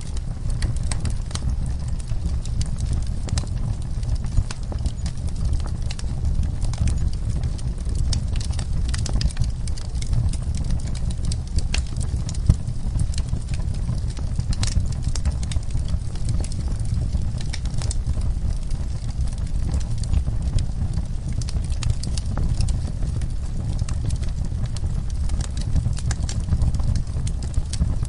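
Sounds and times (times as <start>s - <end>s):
fire crackling and popping: 0.0s - 28.0s
fire rumbling: 0.0s - 28.0s.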